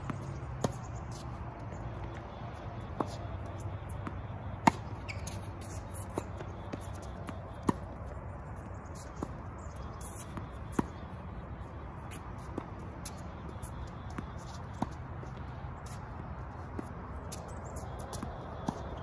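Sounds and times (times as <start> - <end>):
tennis ball bouncing: 0.1 - 8.2, 8.9 - 16.0, 16.6 - 19.0
racket hitting tennis ball: 2.8 - 8.0, 9.0 - 11.2.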